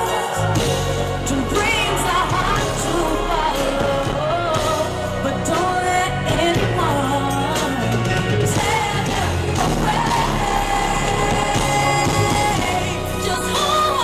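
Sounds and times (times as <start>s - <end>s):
band with steady bass: 0.0s - 14.0s
woman singing: 0.0s - 14.0s.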